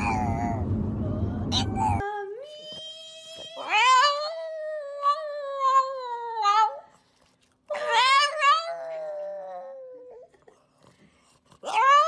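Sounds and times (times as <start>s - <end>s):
dog howling: 7.7s - 10.2s.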